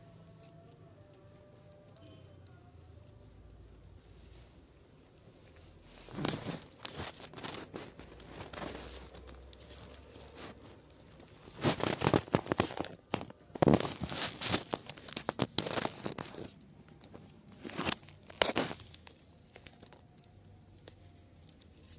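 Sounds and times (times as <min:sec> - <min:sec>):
rustling and crinkling: 0:00.0 - 0:21.9.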